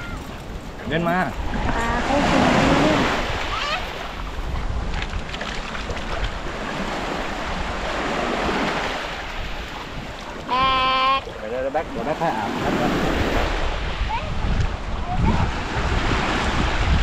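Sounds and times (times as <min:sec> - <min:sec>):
waves washing over sand: 0:00.0 - 0:17.0
wind buffeting microphone: 0:00.0 - 0:17.0
high-pitched cry: 0:10.5 - 0:11.3.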